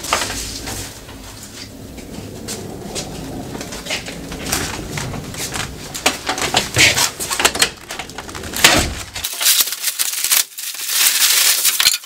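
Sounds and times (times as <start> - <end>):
knocks and clatter: 0.0 - 9.3
plastic rustling: 0.0 - 12.0.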